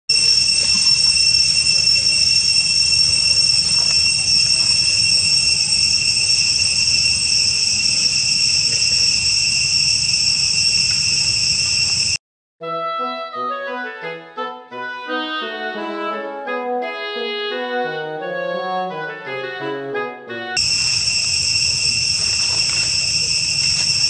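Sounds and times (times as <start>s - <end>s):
insect chorus drone: 0.2s - 12.2s, 20.6s - 24.0s.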